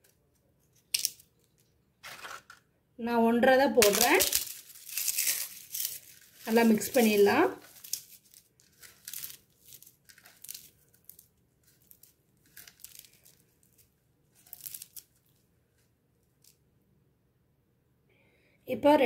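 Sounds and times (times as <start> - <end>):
crisp food crackling on a plate: 3.8 - 15.3.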